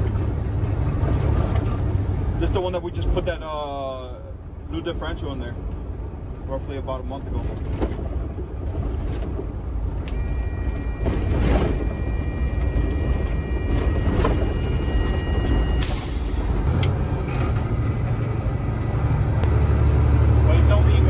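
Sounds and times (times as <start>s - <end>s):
truck engine rumbling: 0.0s - 21.0s
thin high tone: 10.1s - 16.7s.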